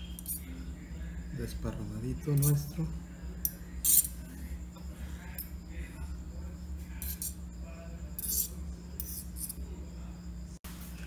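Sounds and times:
knife scraping and clinking: 0.0s - 0.5s, 2.3s - 2.7s, 3.4s - 4.3s, 7.0s - 7.4s, 8.1s - 9.7s
steady low hum: 0.0s - 11.0s.

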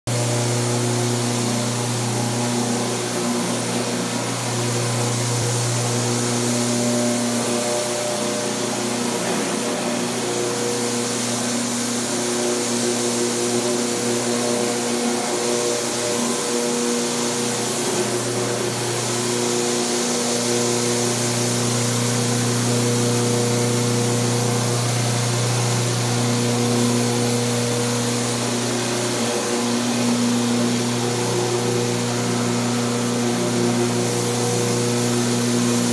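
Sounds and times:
floor scrubbing machine running: 0.1s - 35.9s.

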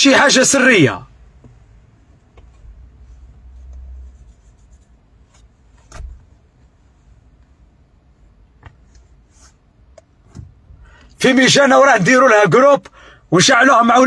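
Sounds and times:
car interior rumble: 1.1s - 11.2s.

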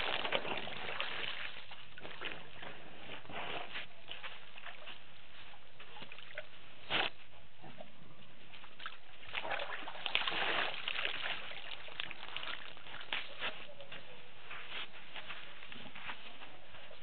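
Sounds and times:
water sloshing and splashing: 0.0s - 3.2s, 8.5s - 13.2s.

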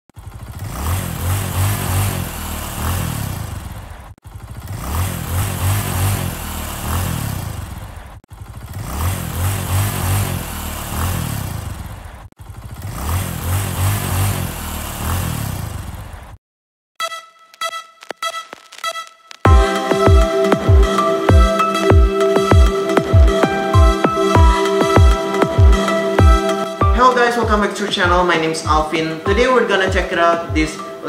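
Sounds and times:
engine revving: 0.1s - 16.4s.

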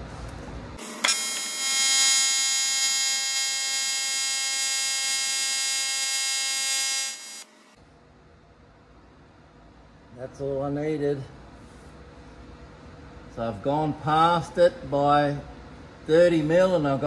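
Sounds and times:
welding arc buzzing: 0.8s - 7.8s.

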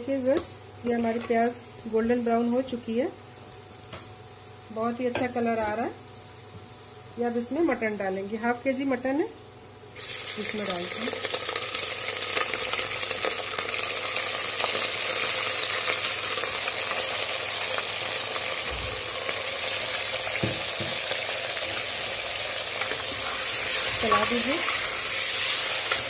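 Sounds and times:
meat sizzling in hot oil: 9.8s - 26.0s.

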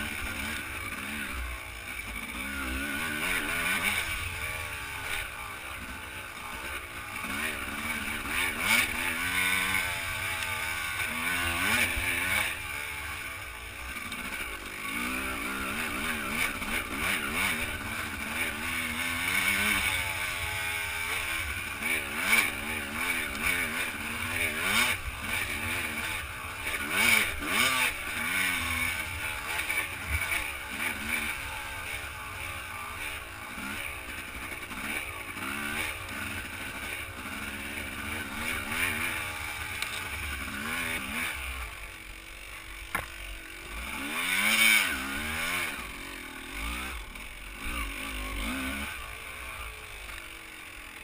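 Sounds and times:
dirt bike engine revving: 0.0s - 51.0s
bike knocking over bumps: 42.9s - 43.2s.

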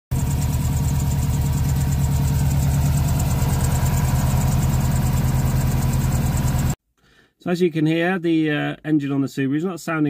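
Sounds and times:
car engine idling: 0.1s - 6.8s.

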